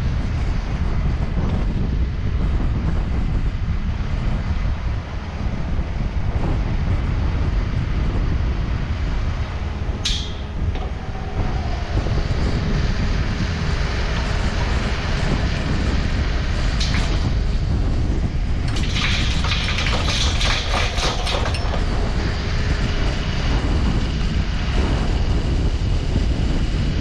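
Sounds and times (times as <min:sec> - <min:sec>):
wind buffeting microphone: 0:00.0 - 0:27.0
excavator diesel engine running: 0:05.1 - 0:26.6.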